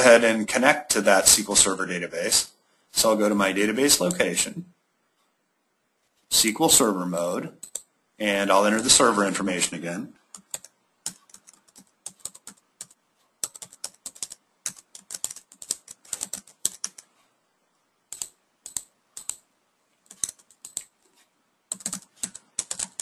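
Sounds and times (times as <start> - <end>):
computer keyboard typing: 7.6 - 7.9, 10.3 - 17.1, 18.1 - 23.0.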